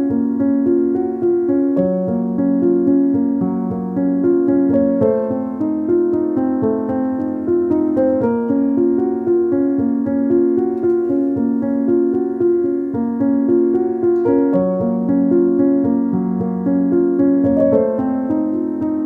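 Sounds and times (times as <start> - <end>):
gentle piano-like keyboard melody: 0.0 - 19.0.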